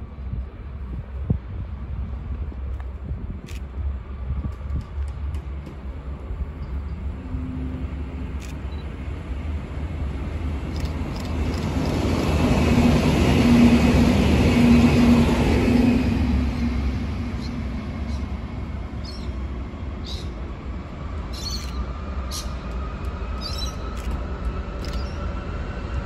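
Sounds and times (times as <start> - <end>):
diesel railcar passing: 0.0 - 26.0
steady low rumble: 0.0 - 26.0.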